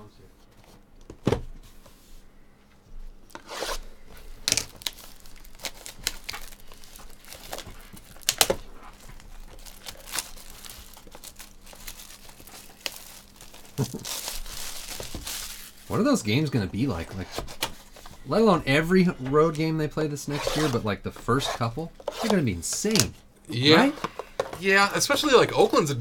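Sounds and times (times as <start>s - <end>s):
wrapper tearing and crinkling: 4.4s - 16.0s.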